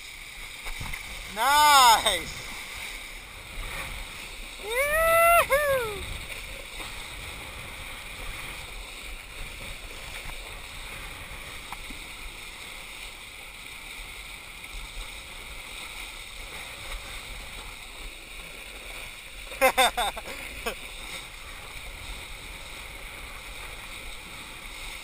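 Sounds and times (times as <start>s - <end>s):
water rushing and spray: 0.0s - 25.0s
wind rumble on microphone: 2.3s - 19.0s.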